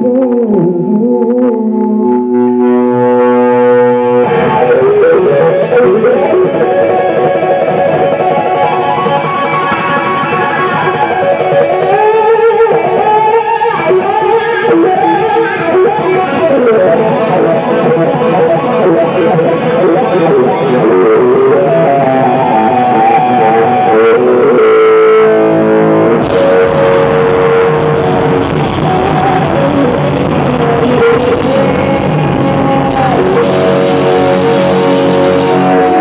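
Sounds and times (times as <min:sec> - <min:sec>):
electric guitar lead solo: 0:00.0 - 0:36.0
live rock band playing: 0:00.0 - 0:36.0.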